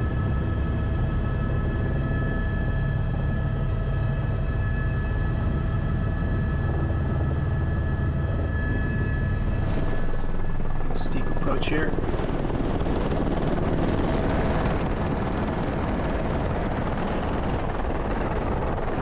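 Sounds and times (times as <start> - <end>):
helicopter rotor and engine drone: 0.0 - 19.0
high whine: 8.7 - 12.3.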